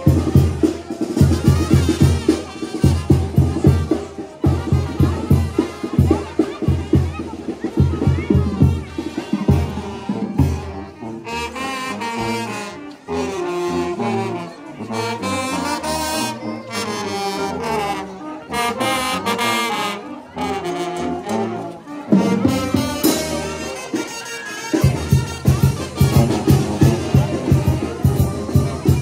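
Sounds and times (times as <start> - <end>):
loud drums: 0.0 - 11.0, 22.1 - 29.0
brass band playing melody: 0.0 - 29.0.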